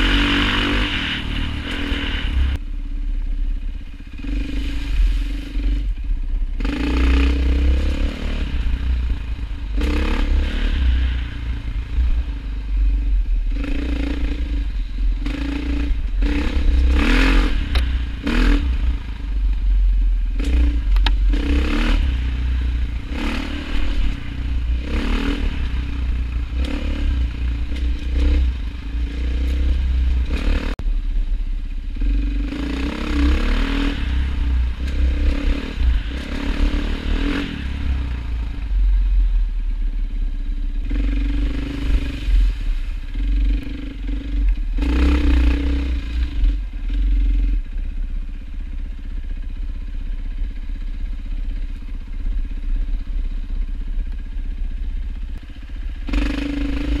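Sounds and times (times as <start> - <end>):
engine rumbling: 0.0 - 57.0.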